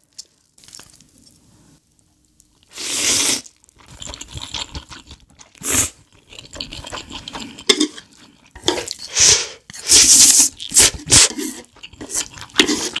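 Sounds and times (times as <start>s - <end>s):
noodle slurping: 2.7s - 13.0s
chewing: 3.6s - 9.1s, 10.6s - 13.0s.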